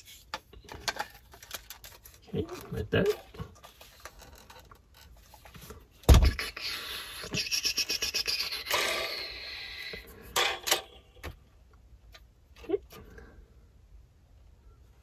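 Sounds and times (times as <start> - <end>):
plastic bricks rubbing and rasping: 0.7 - 5.7.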